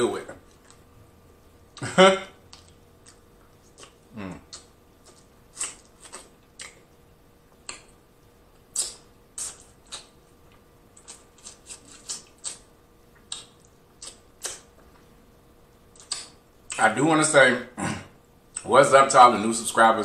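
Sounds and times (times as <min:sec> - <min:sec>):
wet chewing mouth smacks: 0:02.5 - 0:06.8, 0:08.7 - 0:10.2, 0:11.0 - 0:14.8, 0:15.9 - 0:16.8.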